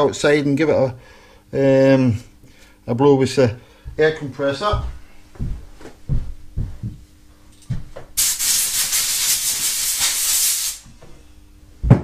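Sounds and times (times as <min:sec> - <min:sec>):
compressed air blow gun blasting: 0:08.2 - 0:10.9.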